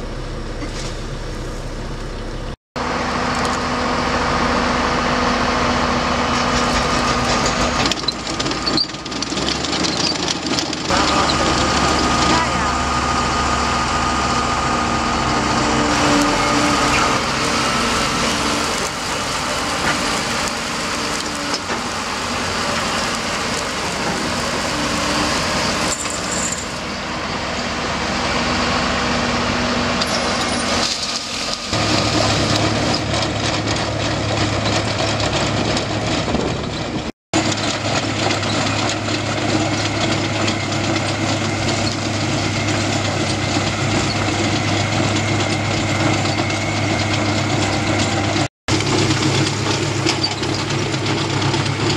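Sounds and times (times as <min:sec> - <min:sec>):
diesel engines running: 0:00.0 - 0:51.9
gravel pouring: 0:04.2 - 0:36.5, 0:48.1 - 0:51.9.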